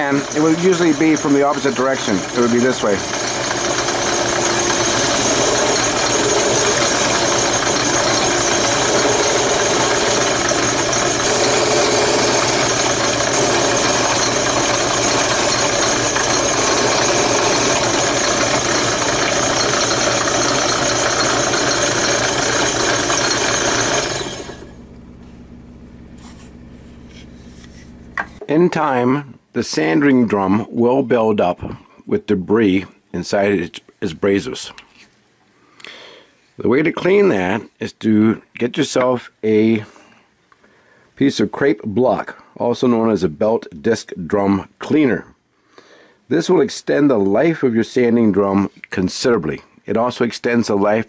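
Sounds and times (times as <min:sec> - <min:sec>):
sanding drum on wood: 0:00.0 - 0:24.6
drill press motor hum: 0:00.0 - 0:28.4.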